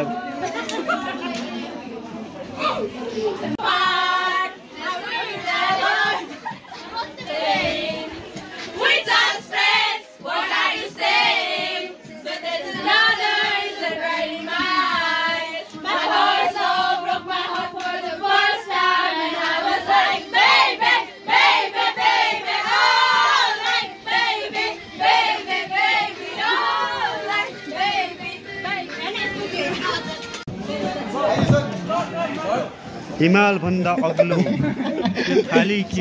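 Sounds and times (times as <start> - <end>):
girls singing in chorus: 3.5 - 31.2.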